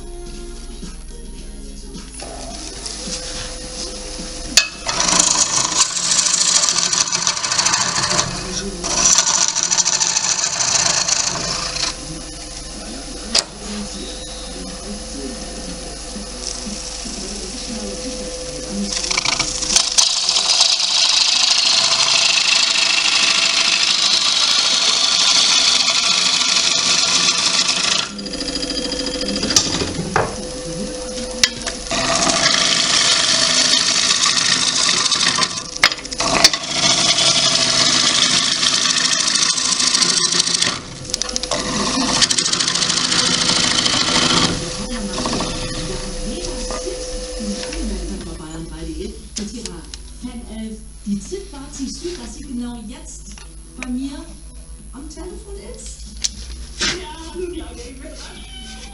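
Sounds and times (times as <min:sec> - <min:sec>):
lathe humming: 0:00.0 - 0:58.3
gouge cutting wood on lathe: 0:02.2 - 0:48.5.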